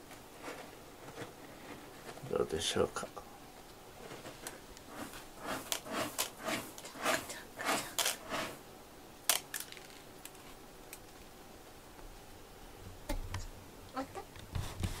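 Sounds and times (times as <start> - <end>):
cat scratching litter: 4.0 - 8.6.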